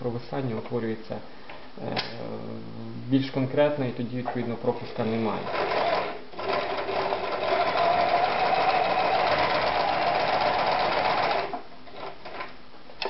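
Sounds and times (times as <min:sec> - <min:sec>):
sewing machine stitching: 0:05.4 - 0:12.5.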